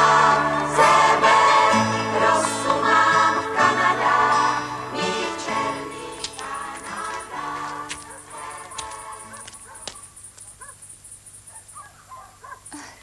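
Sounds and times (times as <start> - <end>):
voices singing together: 0.0 - 9.6.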